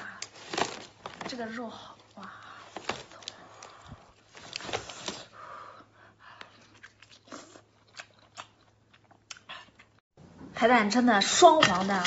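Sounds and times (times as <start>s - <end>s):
person chewing: 6.5s - 10.0s.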